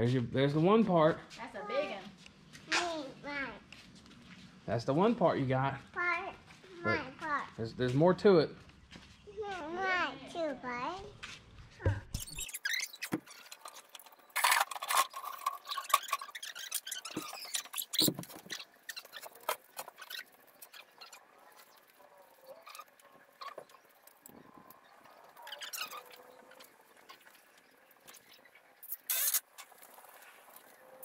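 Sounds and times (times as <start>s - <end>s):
boards squeaking: 11.8s - 21.8s.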